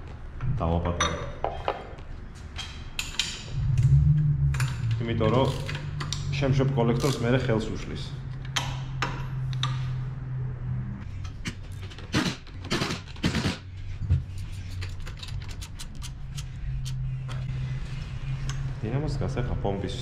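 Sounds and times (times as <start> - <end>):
hand ratchet clicking: 5.3 - 6.3.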